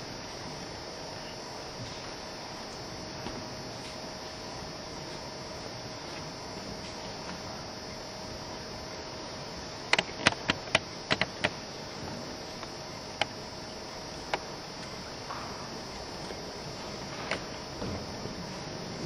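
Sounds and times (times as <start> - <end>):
background hiss: 0.0 - 19.0
faint hum: 0.0 - 19.0
sharp clicks: 9.9 - 11.6.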